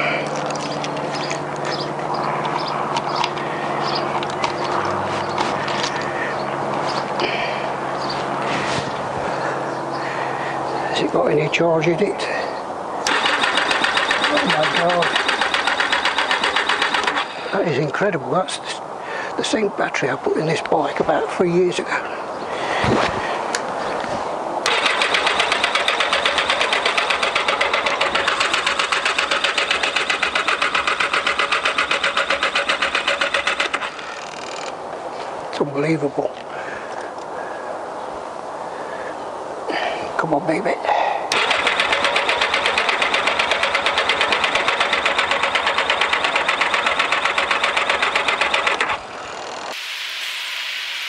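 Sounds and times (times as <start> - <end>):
engine cranking on starter: 13.0 - 17.5, 24.6 - 34.8, 41.3 - 49.8.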